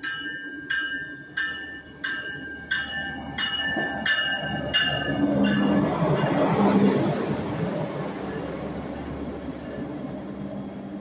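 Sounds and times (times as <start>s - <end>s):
warning bell ringing: 0.0s - 6.6s
train rumble: 0.0s - 11.0s.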